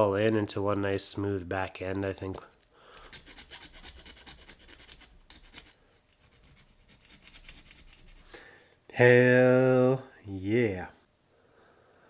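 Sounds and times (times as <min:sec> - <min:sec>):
file scraping metal: 0:03.0 - 0:08.3.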